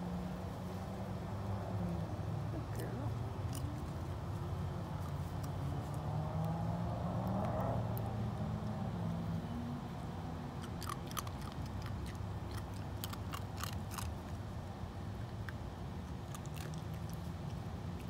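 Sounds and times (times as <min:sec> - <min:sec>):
steady low hum: 0:00.0 - 0:18.0
fox chewing with crunching clicks: 0:02.6 - 0:06.6, 0:10.4 - 0:18.0.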